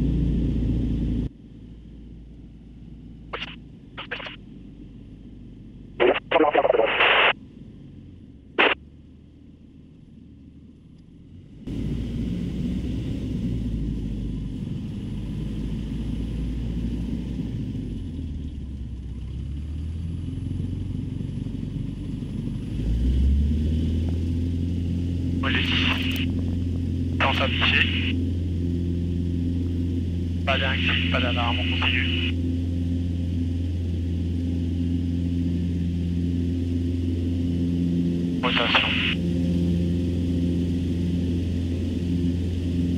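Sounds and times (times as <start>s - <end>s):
airplane piston engine droning: 0.0s - 42.9s
crackly radio voice: 3.4s - 4.4s, 6.0s - 7.4s, 25.4s - 26.3s, 27.2s - 28.2s, 30.4s - 32.4s, 38.4s - 39.2s.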